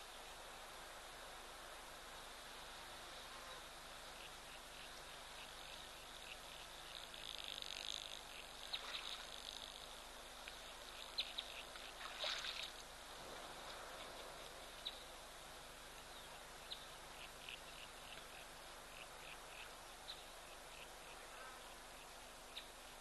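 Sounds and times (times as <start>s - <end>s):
insects buzzing: 0.0s - 23.0s
small birds chirping: 10.6s - 12.0s.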